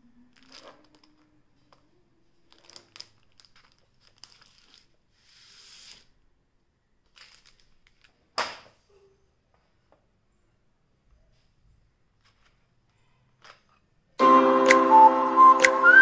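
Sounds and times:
plastic wrap crinkling and tearing: 0.3s - 6.1s, 7.1s - 8.2s.

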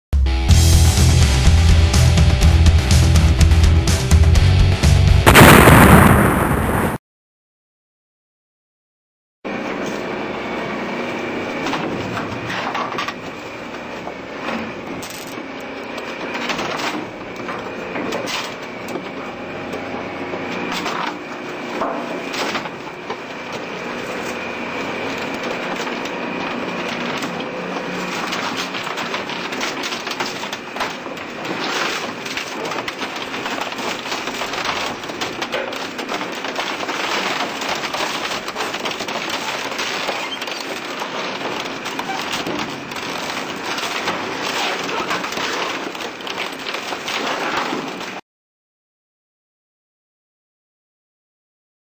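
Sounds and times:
shredder grinding wood: 9.5s - 48.2s
wood cracking and snapping: 20.6s - 48.2s.

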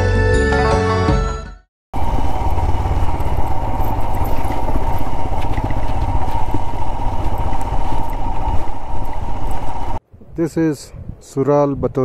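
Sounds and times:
motorcycle engine running: 2.0s - 10.0s.

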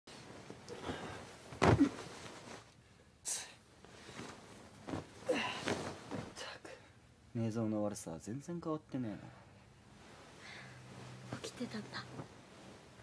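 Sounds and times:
bedding rustling: 0.1s - 3.0s, 3.7s - 6.9s, 9.8s - 13.0s.

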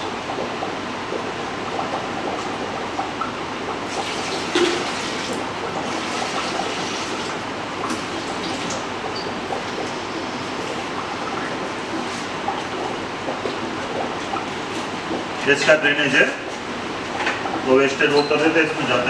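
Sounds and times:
water splashing into metal hopper: 2.4s - 9.9s.

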